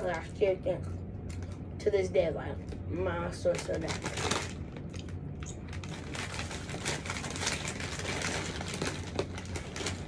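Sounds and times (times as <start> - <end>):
chip bag crinkling: 3.4 - 10.0.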